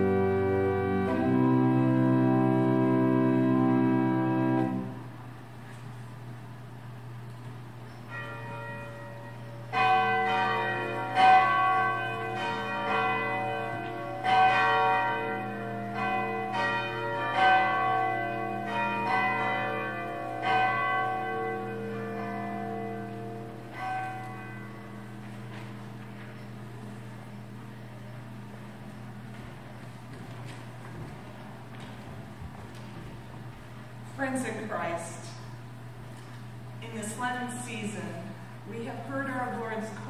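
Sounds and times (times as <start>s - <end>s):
steady low hum: 0.0s - 40.0s
bells ringing: 8.0s - 29.3s.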